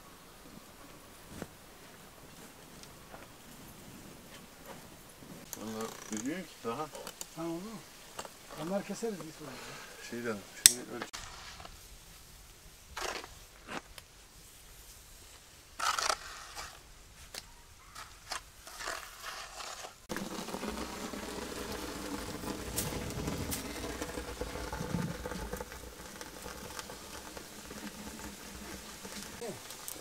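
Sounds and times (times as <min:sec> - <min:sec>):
twigs crackling in fire: 0:01.3 - 0:16.1, 0:20.0 - 0:30.0
trowel scraping wet cement: 0:13.0 - 0:13.3, 0:15.8 - 0:16.8, 0:17.9 - 0:30.0.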